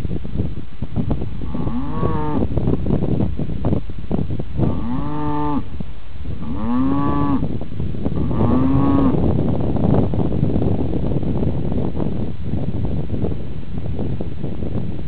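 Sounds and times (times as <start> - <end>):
calf mooing: 1.5 - 2.4.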